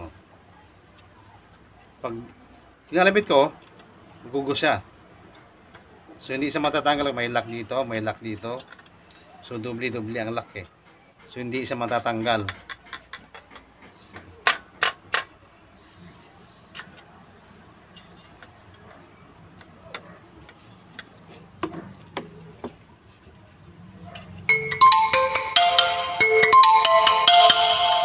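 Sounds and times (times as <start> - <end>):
faint clicks and taps: 18.0 - 23.4
marimba ringtone tune: 24.5 - 28.0.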